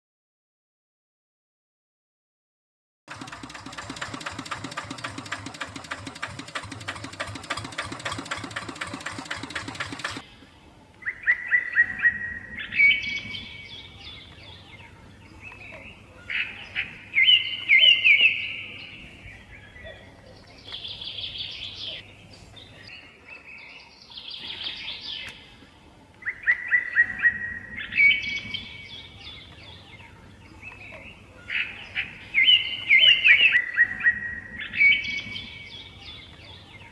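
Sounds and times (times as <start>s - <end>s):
rapidly ticking machine: 3.1s - 10.2s.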